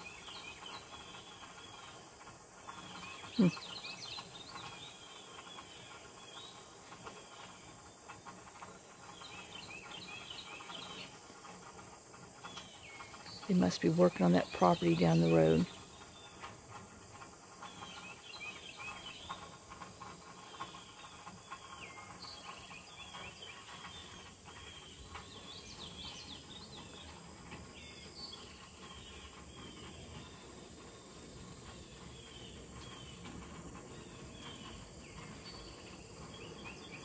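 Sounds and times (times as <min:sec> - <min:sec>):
birds chirping and singing: 0:08.6 - 0:11.2, 0:17.6 - 0:37.0.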